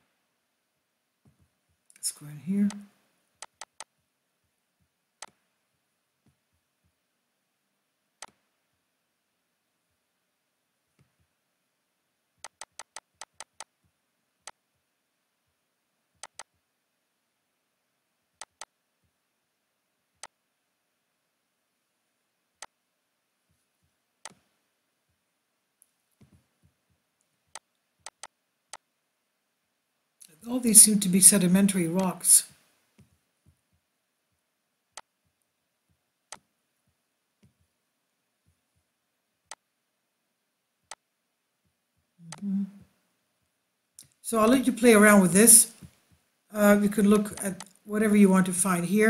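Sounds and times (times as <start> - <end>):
computer mouse clicks: 12.4 - 13.7, 16.2 - 16.5, 18.4 - 18.7, 24.2 - 24.5, 27.5 - 28.8.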